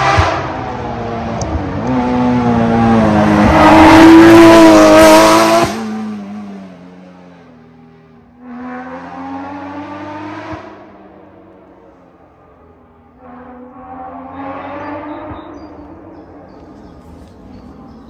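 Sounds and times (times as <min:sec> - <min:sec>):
distant engine accelerating: 0:00.0 - 0:11.6
rally car engine passing: 0:00.0 - 0:18.0.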